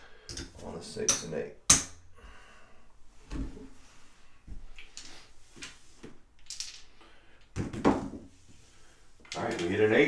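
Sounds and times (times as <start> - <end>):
casino chips clacking: 6.4 - 6.9.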